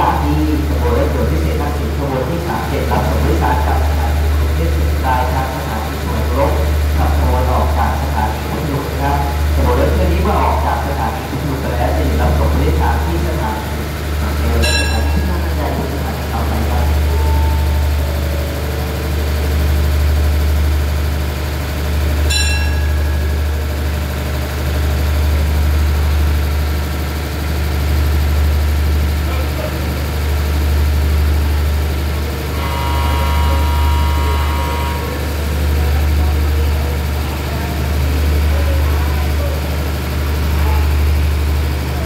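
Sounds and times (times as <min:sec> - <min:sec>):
diesel train engines idling: 0:00.0 - 0:42.0
held tone: 0:14.5 - 0:15.9, 0:16.5 - 0:18.6, 0:22.3 - 0:23.8.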